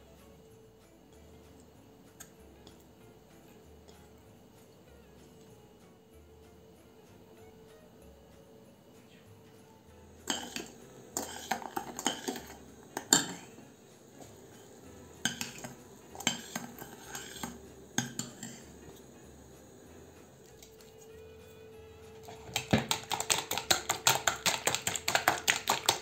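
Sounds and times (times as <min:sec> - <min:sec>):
metal spoon scraping saucepan: 0:10.2 - 0:13.6, 0:14.2 - 0:21.1.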